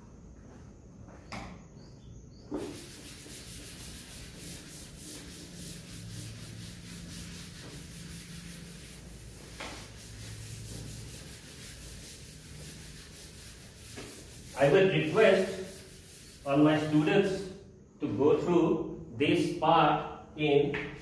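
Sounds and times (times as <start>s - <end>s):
duster scrubbing chalkboard: 2.4s - 17.4s.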